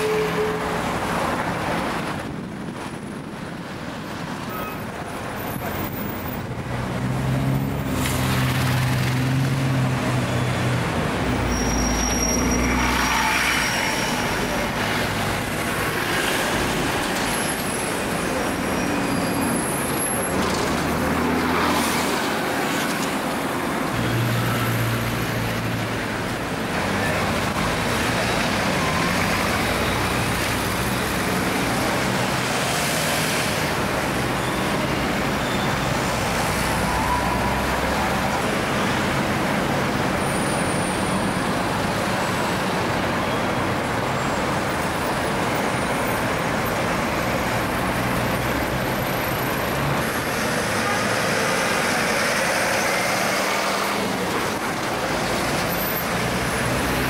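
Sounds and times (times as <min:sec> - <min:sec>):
city street traffic: 0:00.0 - 0:57.0
bus diesel engine hum: 0:43.7 - 0:57.0.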